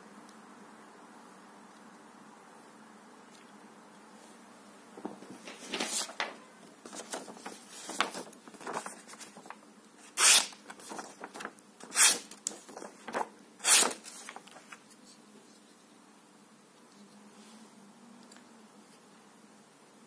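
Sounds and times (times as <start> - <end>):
paper rustling: 5.0 - 15.1
knife slicing paper: 10.0 - 14.4.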